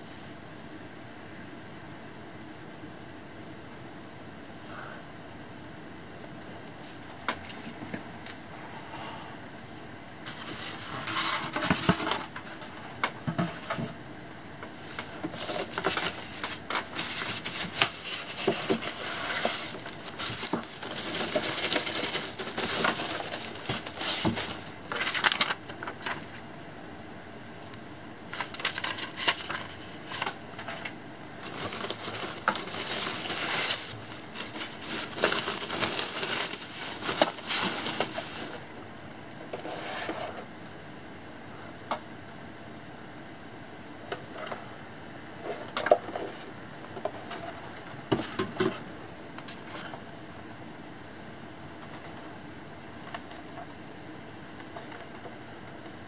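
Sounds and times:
plastic bag crinkling: 15.2s - 26.4s, 28.3s - 38.7s.

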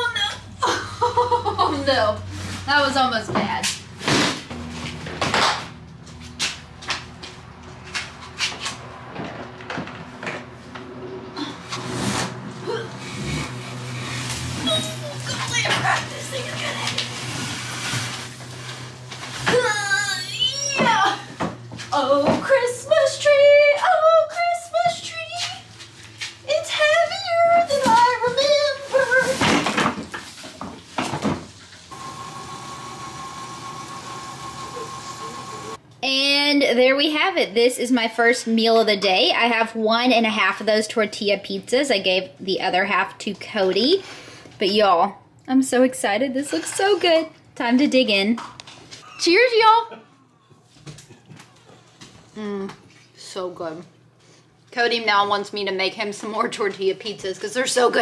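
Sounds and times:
oven hum with high whine: 0.0s - 37.5s
cardboard box scraping: 11.7s - 15.6s
woman humming: 12.6s - 13.7s, 52.4s - 52.8s.

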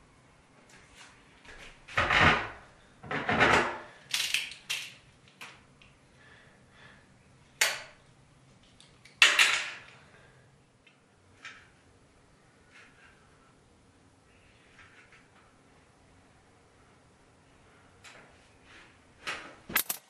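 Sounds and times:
metal tools scraping: 19.8s - 20.0s.

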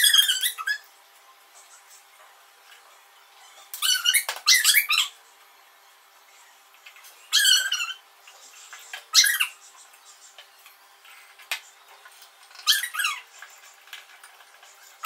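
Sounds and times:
high squeaky animal calls: 0.0s - 0.9s, 2.9s - 5.2s, 7.1s - 10.4s, 12.5s - 13.8s.

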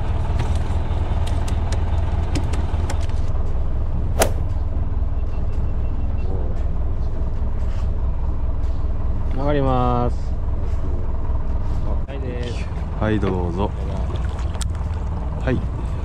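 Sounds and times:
sharp knock: 4.2s - 4.5s.

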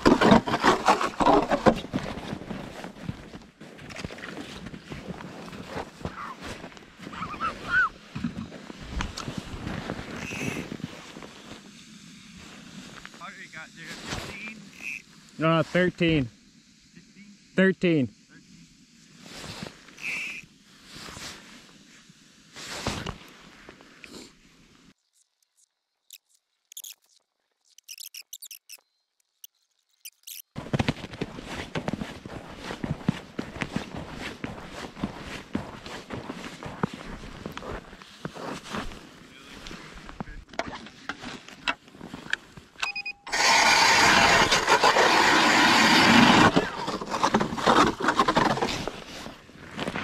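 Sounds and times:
ice auger grinding: 0.0s - 2.9s, 20.0s - 20.4s, 43.3s - 49.3s
footsteps crunching on snowy ice: 0.0s - 11.8s, 30.5s - 42.8s, 44.2s - 50.0s
faint high squeaks and clicks: 10.1s - 10.7s, 20.0s - 20.5s, 25.0s - 30.6s
short tone: 42.8s - 43.4s.

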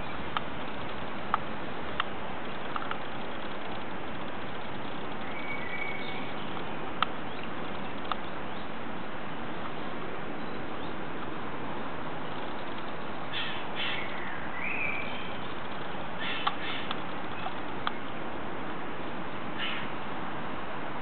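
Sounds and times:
steady background noise: 0.0s - 21.0s
bird calling in harsh bursts: 13.2s - 15.4s, 16.1s - 17.5s, 19.6s - 19.9s.

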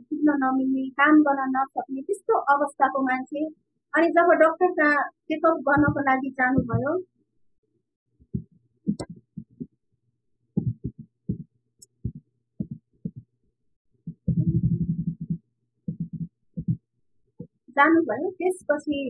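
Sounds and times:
knocks and rubbing on microphone: 5.7s - 7.0s, 8.2s - 9.8s, 10.6s - 13.4s, 14.0s - 17.6s.

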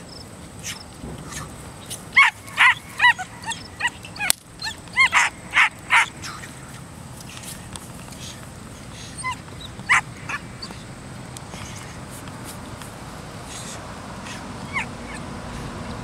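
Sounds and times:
puppy yipping and barking: 2.2s - 6.5s, 9.2s - 10.8s, 14.3s - 15.3s.

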